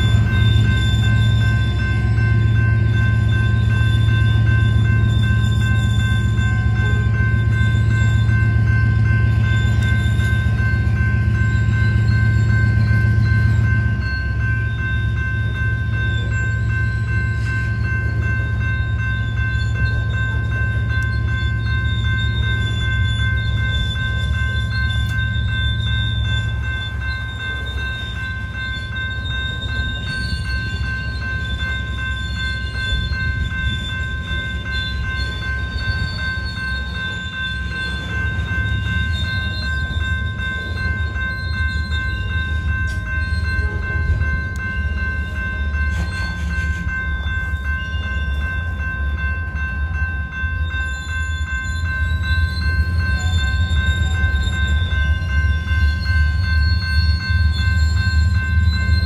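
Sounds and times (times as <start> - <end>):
crossing bell ringing: 0.0 - 59.0
freight train wheels rumbling on rail: 0.0 - 59.0
wheel squeal: 50.3 - 59.0.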